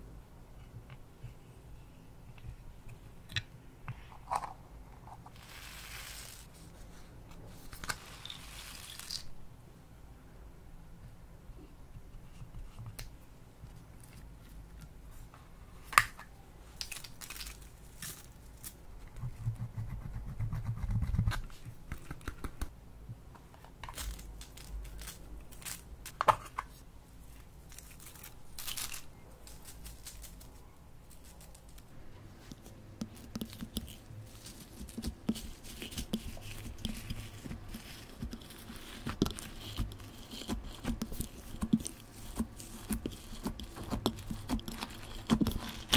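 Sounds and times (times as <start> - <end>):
spatula scraping plastic compact: 33.0 - 45.9.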